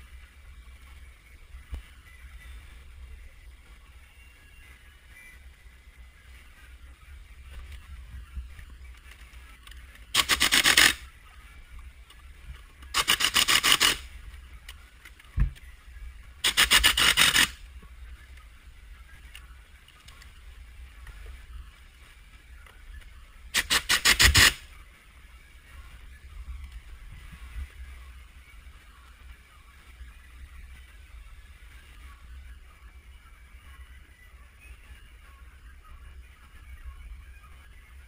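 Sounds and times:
pneumatic impact wrench hammering: 10.2 - 11.0, 13.0 - 14.0, 16.4 - 17.6, 23.6 - 24.6.

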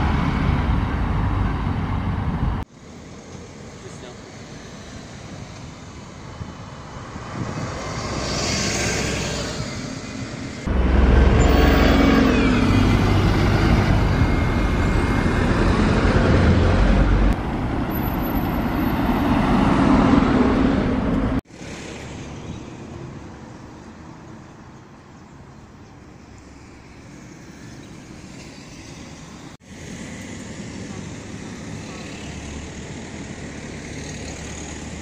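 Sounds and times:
distant road traffic: 0.0 - 35.0
heavy vehicle engine running: 10.6 - 17.4.

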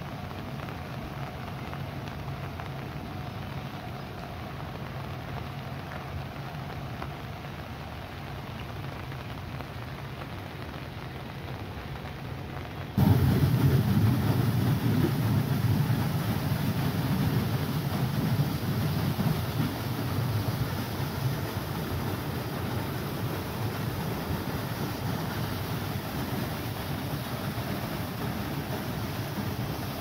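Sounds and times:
steady rain: 0.0 - 30.0
flood water gushing from pipes: 13.0 - 30.0.

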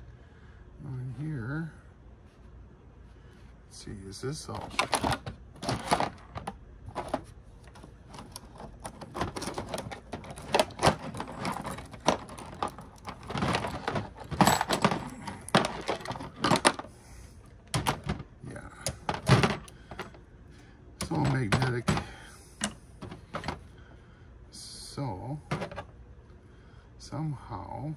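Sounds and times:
small parts clicking and rattling: 4.5 - 16.9, 17.6 - 20.2.

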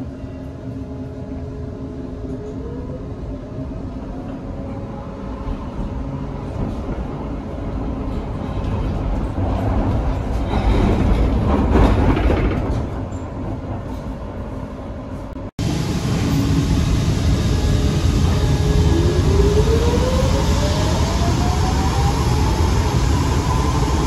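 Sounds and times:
tram wheels rumbling on rails: 2.2 - 24.0.

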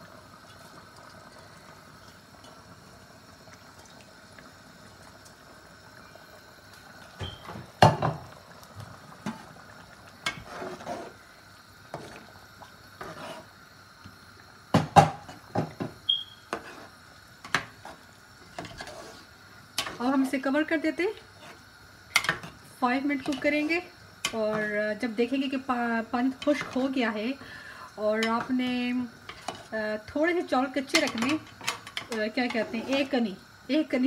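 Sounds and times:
stock simmering hiss: 0.0 - 34.0.

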